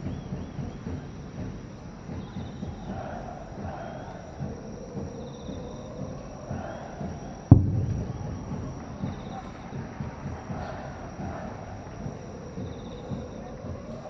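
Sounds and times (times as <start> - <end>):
distant firework boom: 7.4 - 11.4.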